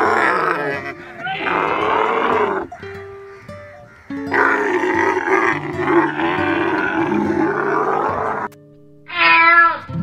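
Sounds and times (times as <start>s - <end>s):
camel groaning call: 0.0s - 2.9s, 4.1s - 8.5s
background music: 0.0s - 10.0s.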